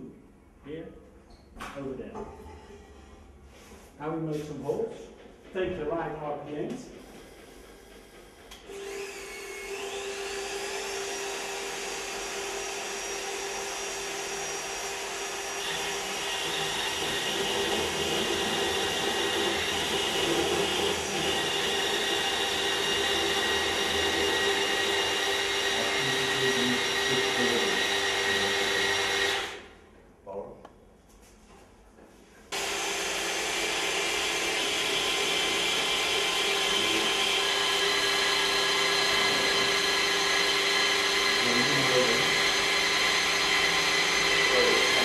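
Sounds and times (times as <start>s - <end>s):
magnetic drill motor whine: 8.6s - 29.6s, 32.6s - 45.0s
cutter cutting steel plate: 32.6s - 45.0s.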